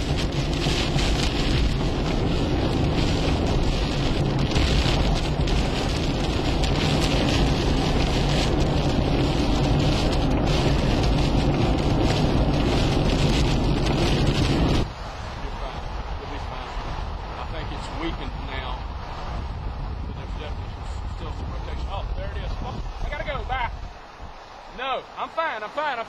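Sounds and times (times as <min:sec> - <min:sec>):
rain hitting car windshield: 0:00.0 - 0:14.9
car road and engine noise: 0:00.0 - 0:26.0.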